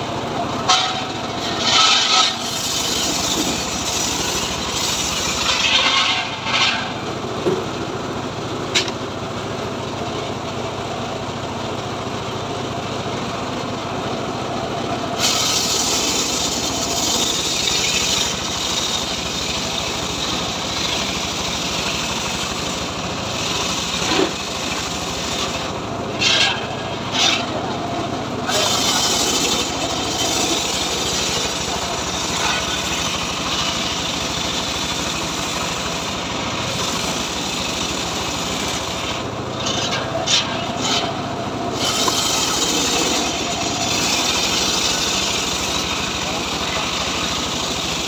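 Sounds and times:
circular sawmill cutting timber: 0.0 - 48.0.

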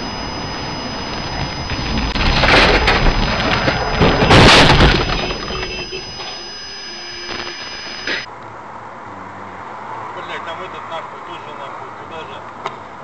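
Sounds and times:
car crash impacts: 1.6 - 6.0.

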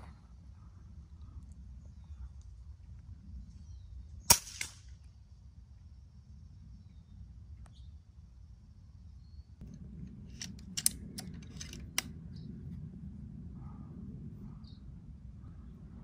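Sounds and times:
air rifle action clicking: 9.6 - 12.2.

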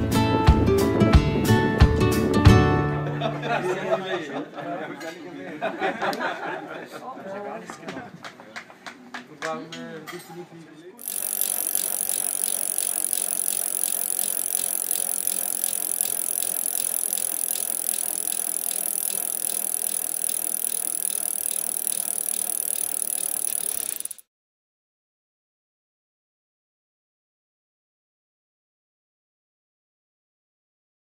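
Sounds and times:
bicycle hiss and rattle: 11.0 - 24.2
bicycle ticking: 11.0 - 24.2.

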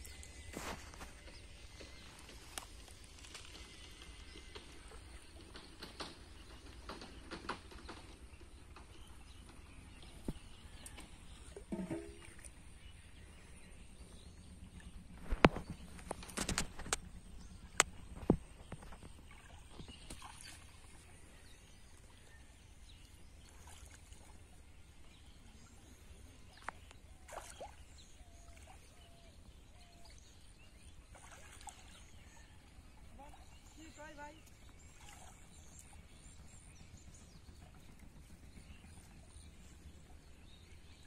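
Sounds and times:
sharp knocks: 11.7 - 12.3
muddy water splashing: 26.5 - 29.2, 29.9 - 32.3.

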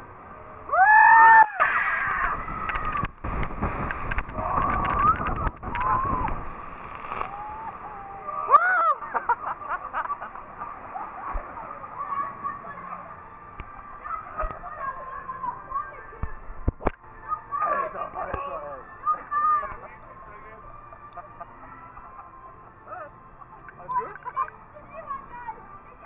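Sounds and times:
water rushing and splashing: 0.0 - 18.7
riders screaming: 0.7 - 3.0
boat crashing into water: 2.2 - 7.4.

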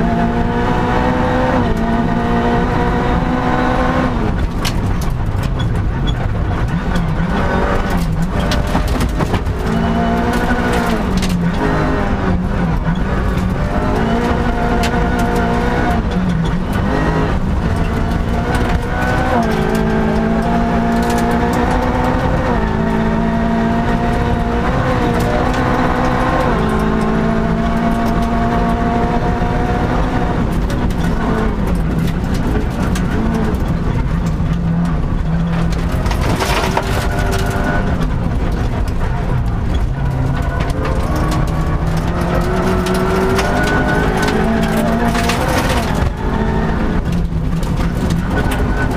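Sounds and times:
rally car engine at full effort: 0.0 - 48.9
clatter from underneath car: 4.2 - 23.0, 24.0 - 48.9
tyres on gravel: 30.6 - 48.9.

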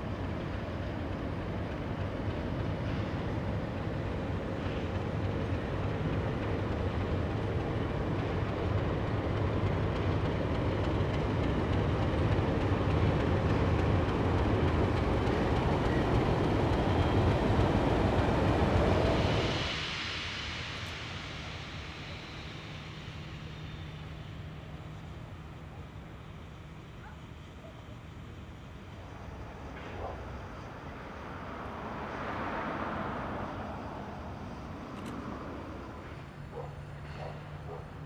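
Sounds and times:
diesel locomotive engine rumble: 0.0 - 38.0
rail noise: 0.0 - 38.0.

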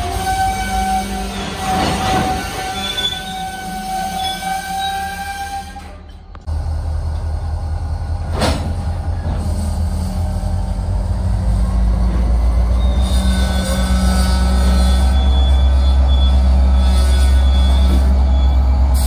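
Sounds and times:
freight train wheels rumbling on rail: 0.0 - 19.0
wheel squeals: 0.4 - 6.2, 12.4 - 18.7.

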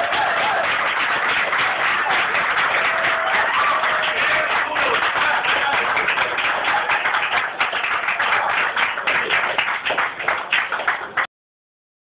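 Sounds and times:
audience applauding: 0.0 - 11.3.

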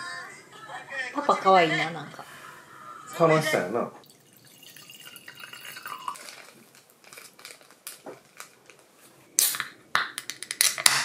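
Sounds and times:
can opening hiss: 9.4 - 9.8.

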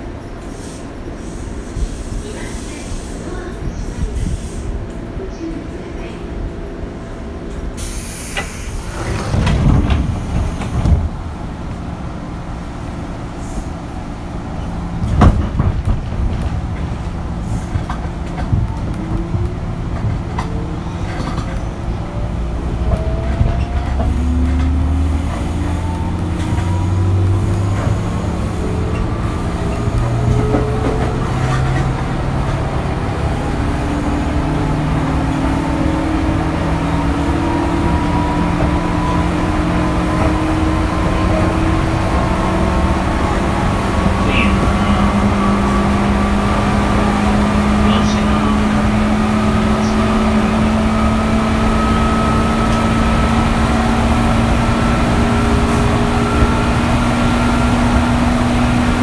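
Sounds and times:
low train rumble: 0.0 - 59.0
burst of hiss: 7.8 - 9.0
train traction motor whine: 21.8 - 59.0.

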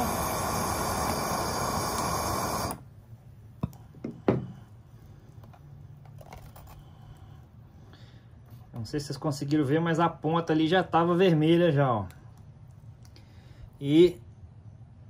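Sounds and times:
gas torch flame rushing: 0.0 - 2.9.

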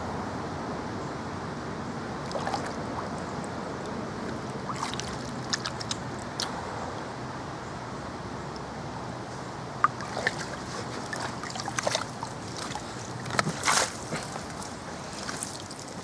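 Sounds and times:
water splashing and lapping: 2.2 - 6.8, 9.8 - 16.0.

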